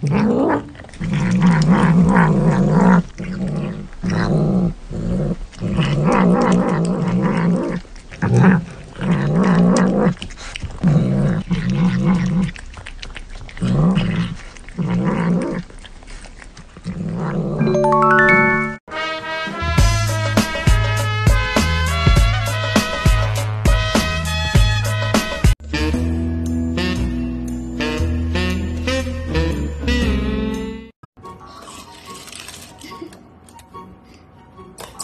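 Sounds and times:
cat growling: 0:00.0 - 0:17.6.

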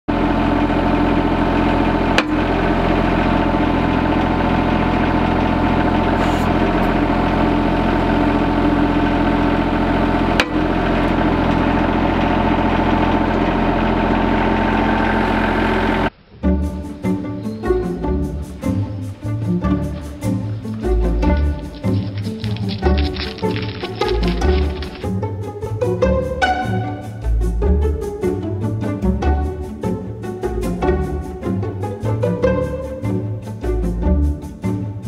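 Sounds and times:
plucked string music: 0:00.1 - 0:35.0
tractor diesel engine running: 0:00.1 - 0:35.0.

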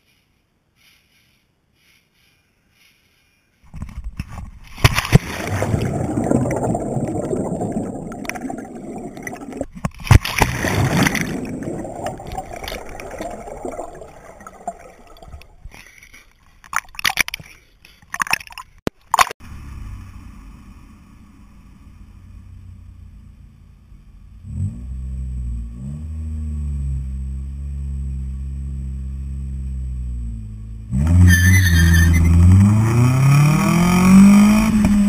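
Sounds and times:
muffled underwater gurgling: 0:05.2 - 0:15.7.

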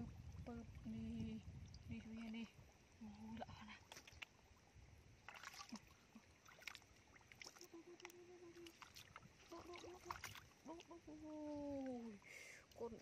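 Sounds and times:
splashing in shallow muddy water: 0:00.0 - 0:13.0.

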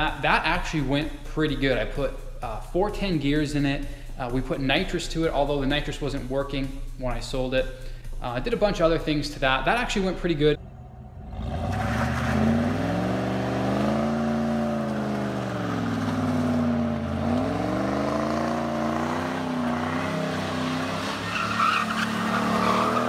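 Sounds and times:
car engine revving: 0:10.6 - 0:23.0
tyres squealing: 0:18.6 - 0:23.0.

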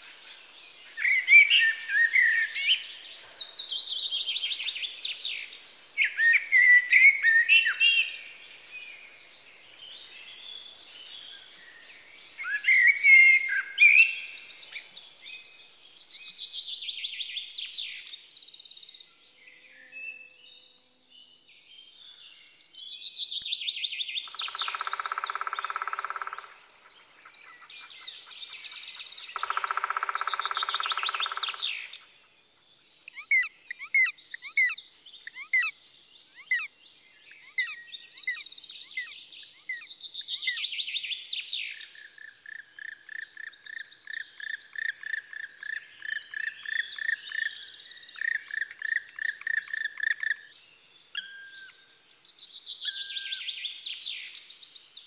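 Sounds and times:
songbirds trilling and chirping: 0:00.0 - 0:55.0.

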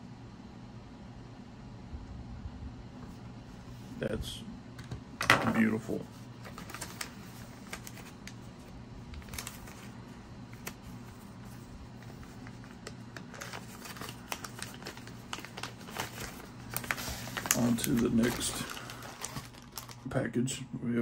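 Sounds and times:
plastic sleeve crinkling: 0:05.3 - 0:20.1.

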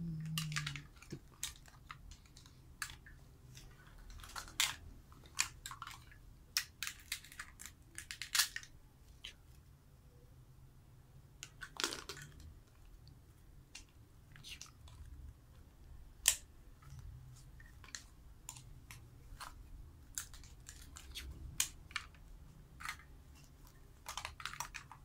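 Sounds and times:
plastic toy pieces clicking: 0:00.2 - 0:03.1, 0:03.8 - 0:08.7, 0:11.4 - 0:12.4, 0:16.2 - 0:16.4, 0:17.8 - 0:22.2, 0:22.8 - 0:23.1, 0:24.0 - 0:25.0.

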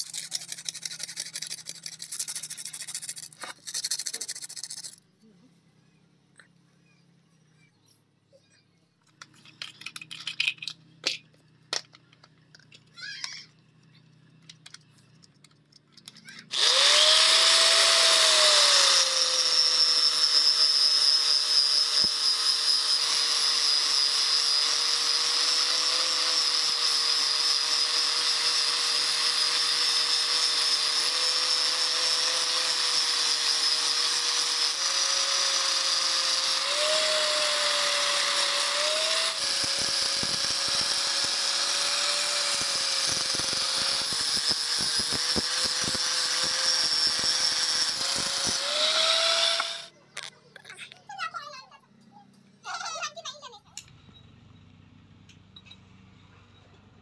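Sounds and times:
angle grinder whining: 0:16.2 - 0:50.3.

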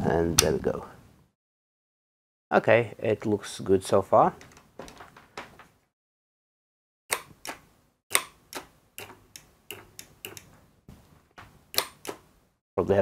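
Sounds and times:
desoldering gun clicks: 0:11.7 - 0:12.2.

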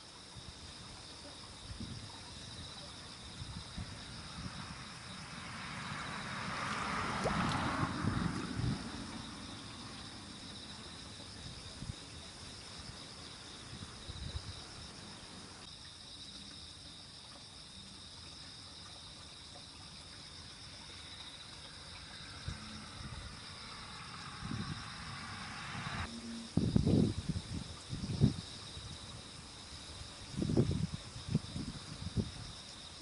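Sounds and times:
chorus of singing insects: 0:00.0 - 0:33.0
faint low bumps: 0:21.6 - 0:28.4.

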